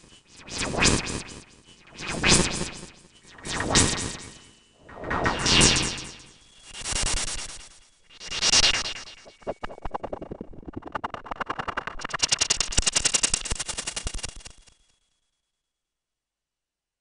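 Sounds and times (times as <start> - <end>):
rapid clicking pulses: 9.2 - 14.7.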